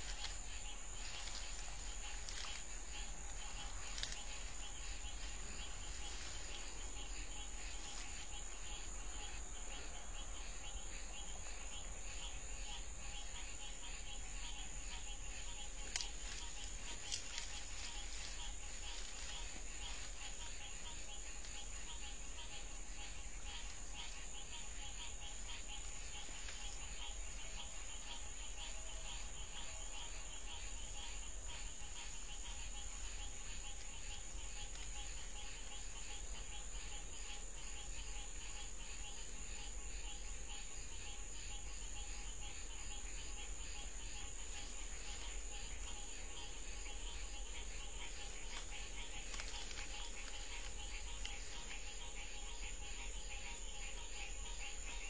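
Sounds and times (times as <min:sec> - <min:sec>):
crickets trilling: 0:00.0 - 0:55.0
faint clicks: 0:01.0 - 0:05.3, 0:15.6 - 0:20.2, 0:34.5 - 0:35.1, 0:48.2 - 0:51.8.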